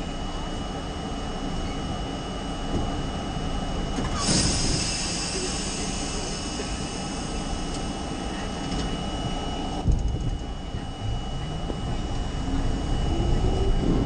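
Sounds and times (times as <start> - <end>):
faint steady whine: 0.0 - 14.0
train wheels rumbling on rail: 2.4 - 14.0
hiss burst: 4.2 - 7.4.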